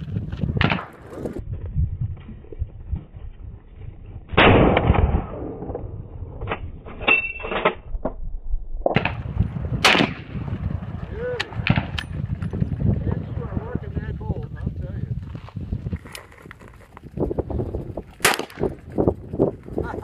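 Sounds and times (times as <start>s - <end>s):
rifle shots with echo: 9.0s - 10.4s, 18.2s - 18.8s.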